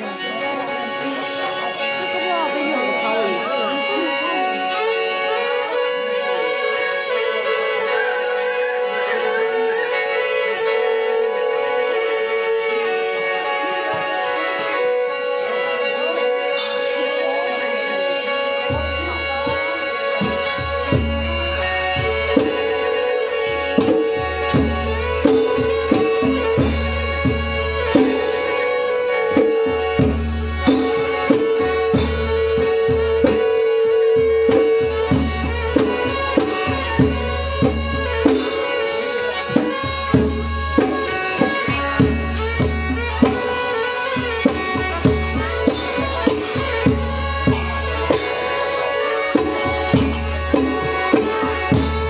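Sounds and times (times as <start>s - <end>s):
long held melody line: 0.0s - 52.0s.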